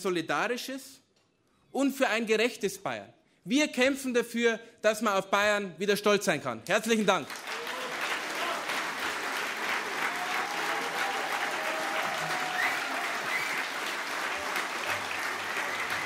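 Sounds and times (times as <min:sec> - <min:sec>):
audience applauding: 0:07.2 - 0:16.0.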